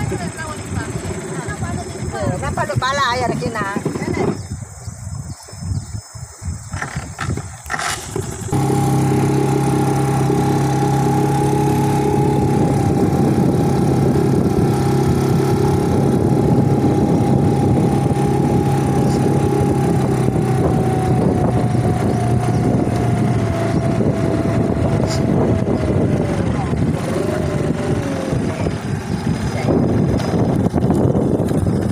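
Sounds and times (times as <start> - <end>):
outboard motor drone: 0.0 - 4.4, 8.1 - 31.9
thin whine: 8.2 - 30.4.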